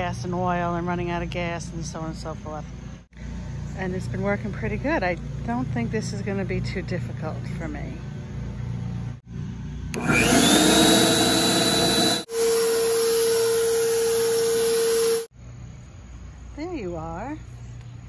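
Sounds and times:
electric leaf blower running: 9.9s - 15.3s.

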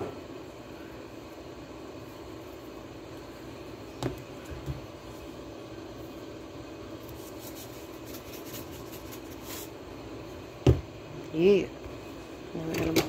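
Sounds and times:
steady background hum: 0.0s - 13.0s
spice shaker rattling: 7.2s - 9.7s.

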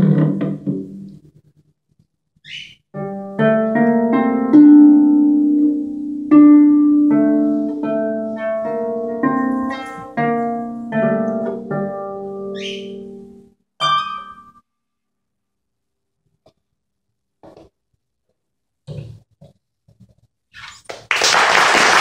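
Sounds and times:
harp playing: 3.0s - 14.6s.

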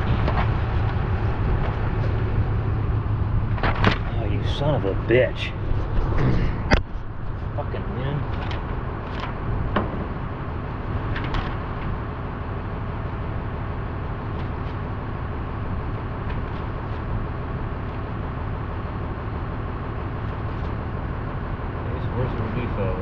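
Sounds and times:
machinery rumble: 0.0s - 23.0s
paper pages rustling: 8.3s - 9.4s.

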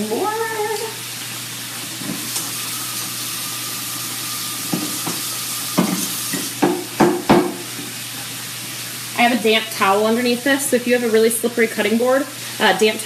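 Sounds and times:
pan sizzling: 0.0s - 13.0s
dishes knocking and clattering: 4.7s - 7.7s.

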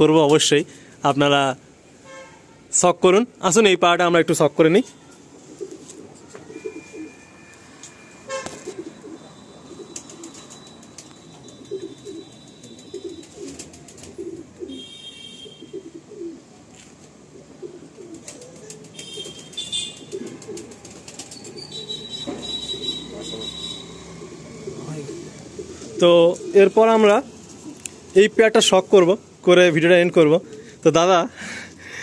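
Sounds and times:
pigeons cooing: 5.4s - 7.4s, 8.3s - 28.1s.

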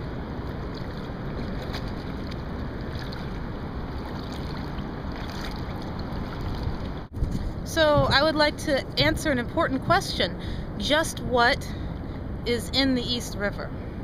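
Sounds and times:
water washing around kayak: 0.0s - 7.1s
wind on microphone: 0.0s - 12.6s
paddle splashes: 0.3s - 7.1s.

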